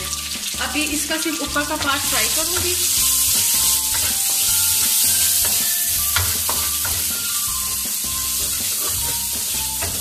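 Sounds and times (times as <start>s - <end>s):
onions sizzling in oil: 0.0s - 10.0s
spoon knocking on pan: 1.8s - 7.2s, 8.4s - 10.0s
wooden spoon scraping a pan: 8.3s - 10.0s.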